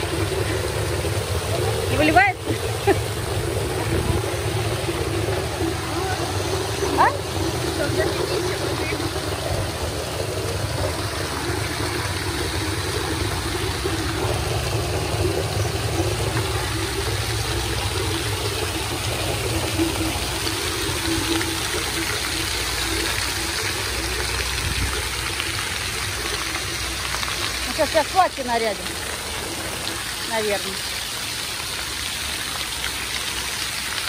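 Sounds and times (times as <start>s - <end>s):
low rumble: 0.0s - 25.5s
fountain jets splashing on paving: 0.0s - 34.0s.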